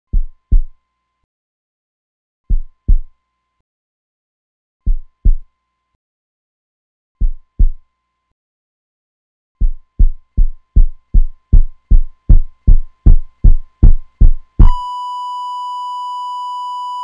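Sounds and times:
heartbeat thumps: 0:00.1 - 0:00.7, 0:02.5 - 0:03.1, 0:04.9 - 0:05.5, 0:07.2 - 0:07.8, 0:09.6 - 0:14.8.

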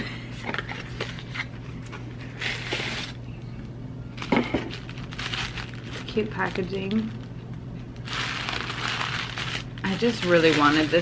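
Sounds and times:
paper and cardboard rustling: 0:08.1 - 0:11.0.

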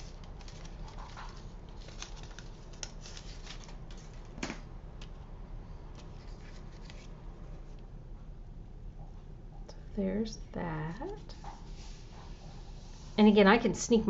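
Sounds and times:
paper rustles and taps: 0:00.0 - 0:05.2.

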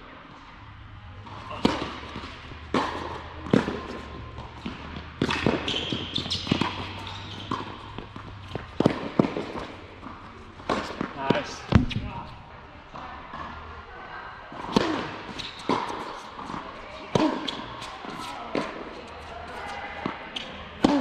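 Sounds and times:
racket hitting tennis ball: 0:01.2 - 0:12.4, 0:14.6 - 0:18.8, 0:20.4 - 0:21.0
tennis ball bouncing on court: 0:01.2 - 0:12.4, 0:14.6 - 0:21.0.

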